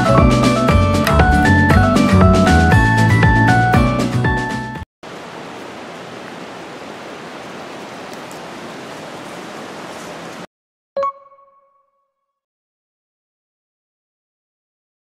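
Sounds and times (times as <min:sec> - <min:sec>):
background music: 0:00.0 - 0:04.8.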